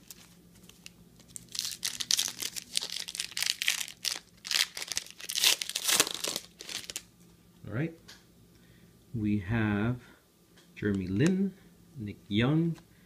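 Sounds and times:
foil wrapper crinkling and tearing: 0.0s - 7.1s.

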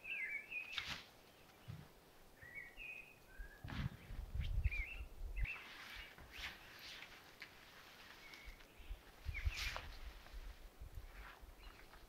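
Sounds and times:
small bird twittering: 2.4s - 7.0s.

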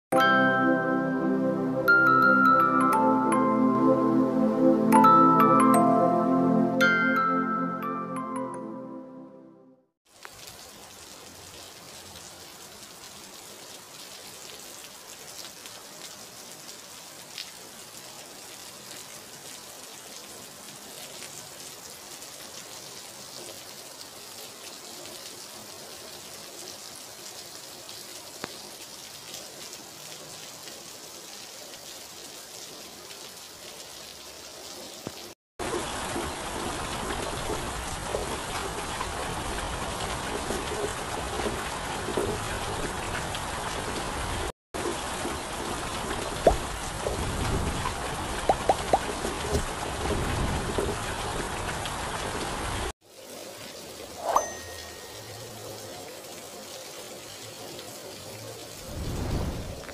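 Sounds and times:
steady rain hiss: 10.1s - 59.9s.

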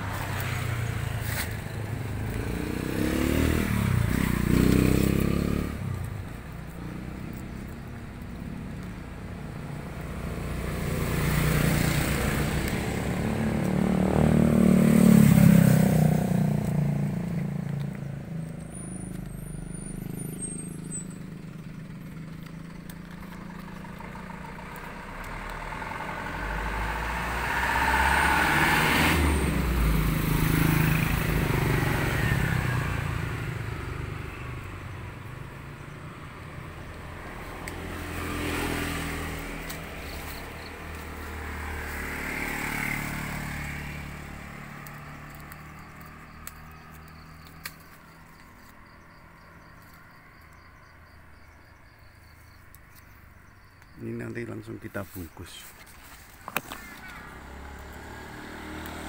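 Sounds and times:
vehicle engine passing by: 0.0s - 59.0s.

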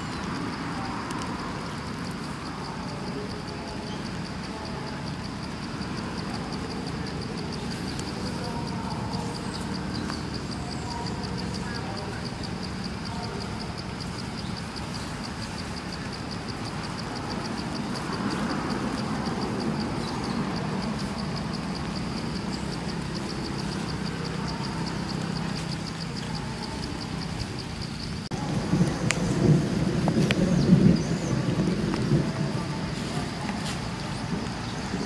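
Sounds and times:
insect chirping: 0.0s - 35.0s
low engine-like rumble: 0.0s - 35.0s.

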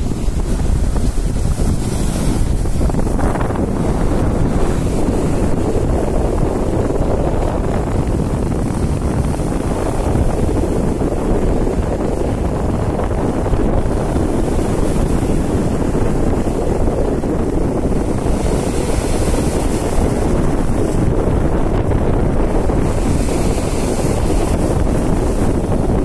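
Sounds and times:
waves breaking on rocks: 0.0s - 26.0s
wind buffeting microphone: 0.0s - 26.0s.

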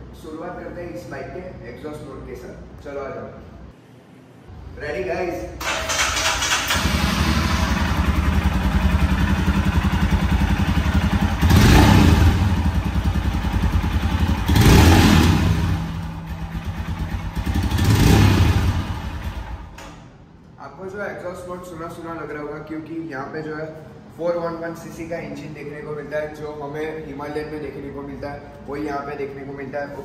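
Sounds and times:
motorcycle engine idling and revving: 5.7s - 19.7s.

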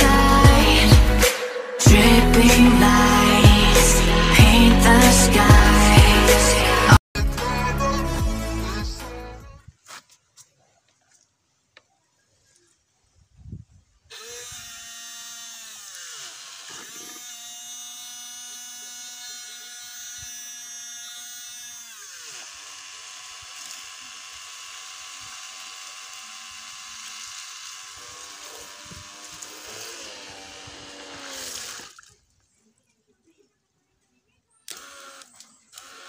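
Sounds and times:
water pump motor whining: 14.1s - 32.0s, 34.7s - 36.0s.

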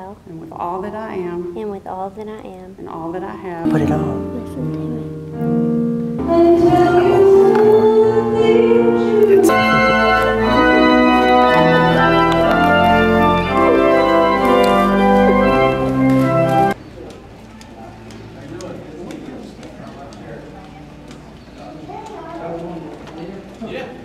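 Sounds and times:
organ chords: 0.9s - 1.8s, 3.6s - 16.8s.

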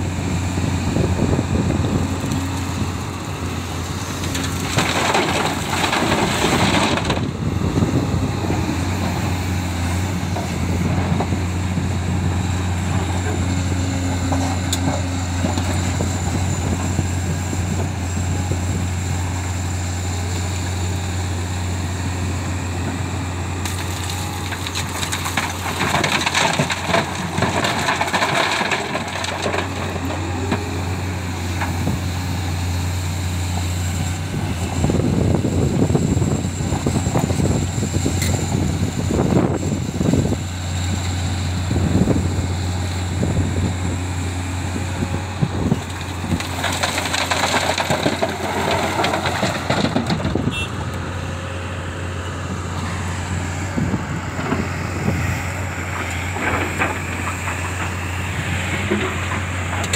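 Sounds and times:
excavator diesel engine running: 0.0s - 59.9s
bucket crunching and scraping stone: 4.1s - 7.2s, 23.7s - 30.9s, 45.8s - 50.4s
rock pouring into truck bed: 23.7s - 30.3s, 45.9s - 50.4s.

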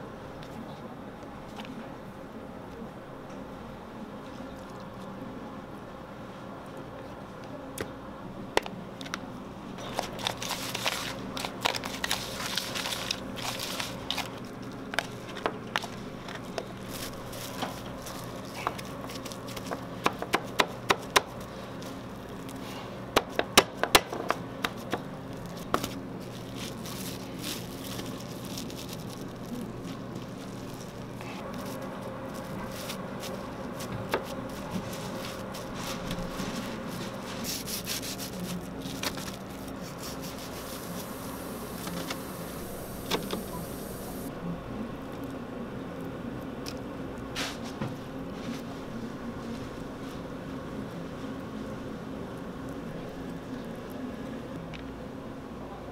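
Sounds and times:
steady low hum: 0.0s - 55.9s
cling film crinkling: 9.8s - 22.8s, 24.6s - 44.3s.

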